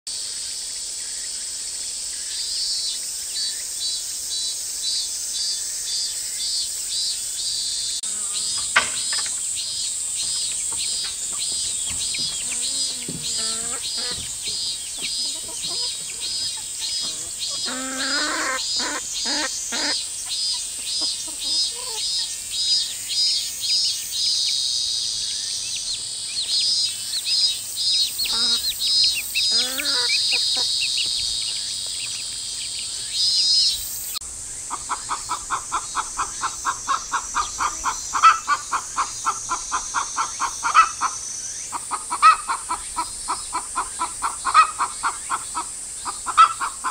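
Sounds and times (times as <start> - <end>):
insects droning: 0.1 - 46.9
hens clucking: 8.0 - 22.2, 28.2 - 31.2, 34.6 - 46.9
chirping call: 8.0 - 24.6, 25.2 - 32.2.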